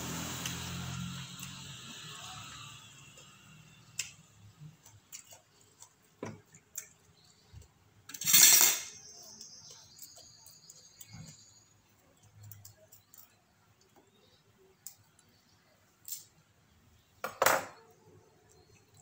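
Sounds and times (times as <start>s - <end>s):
utensils and plates clicking: 8.1s - 9.1s.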